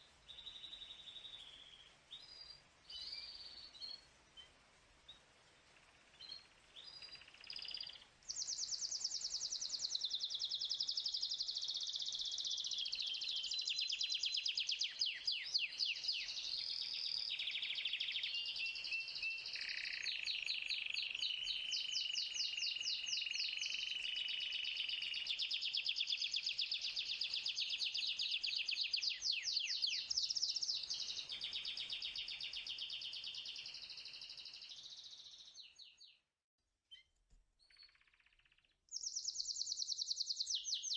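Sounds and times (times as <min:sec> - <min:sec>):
canary singing trills: 0:06.2 - 0:36.2, 0:37.6 - 0:40.9.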